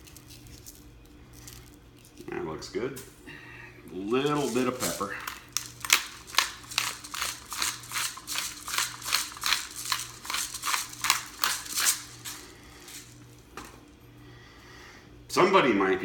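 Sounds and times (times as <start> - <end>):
pepper grinder crunching clicks: 4.2 - 13.2.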